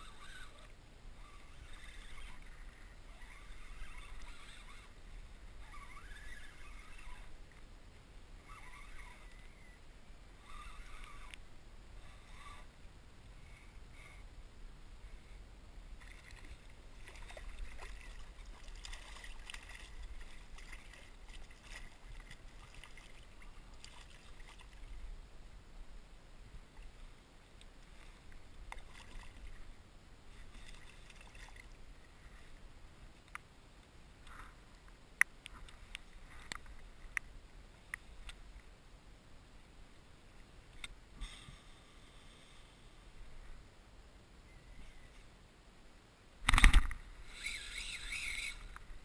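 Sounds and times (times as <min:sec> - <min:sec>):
water splashing and lapping: 0:16.0 - 0:25.0, 0:27.8 - 0:29.7, 0:30.3 - 0:31.8.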